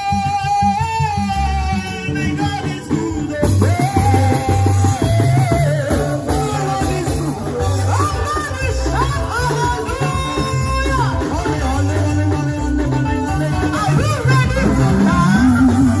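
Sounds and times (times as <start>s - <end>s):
live gospel band music: 0.0s - 16.0s.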